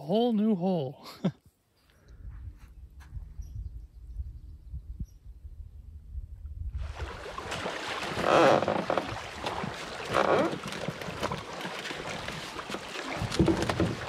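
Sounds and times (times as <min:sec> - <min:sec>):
wind noise on microphone: 0:02.0 - 0:14.0
paddle strokes splashing water: 0:06.8 - 0:14.0.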